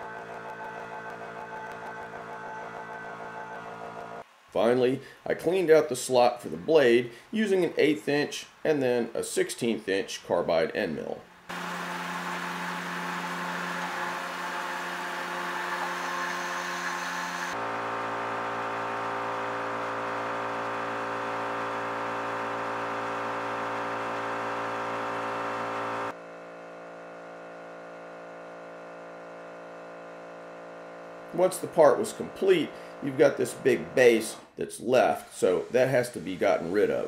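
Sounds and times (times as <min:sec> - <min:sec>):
milling machine cutting steel: 0:00.0 - 0:04.2, 0:11.5 - 0:26.1, 0:35.0 - 0:37.0.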